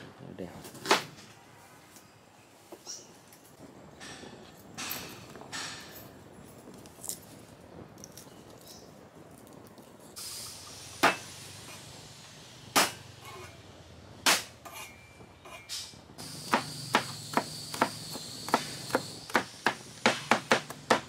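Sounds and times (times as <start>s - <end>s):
insects humming: 16.2s - 21.0s.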